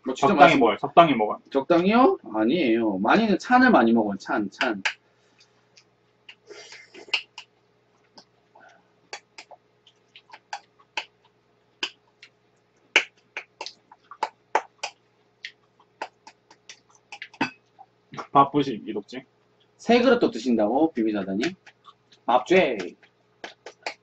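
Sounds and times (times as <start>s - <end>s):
chewing smacks: 9.1s - 18.3s, 21.4s - 24.0s.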